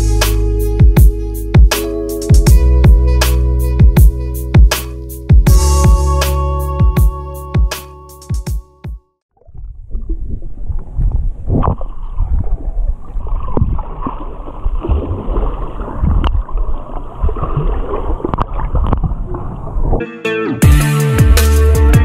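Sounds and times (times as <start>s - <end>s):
water rushing underwater: 9.4s - 20.0s.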